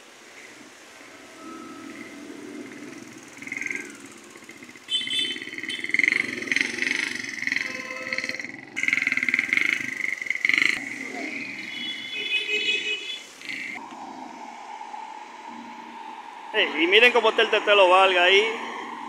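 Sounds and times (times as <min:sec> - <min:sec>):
motorcycle engines running: 0:00.3 - 0:12.4.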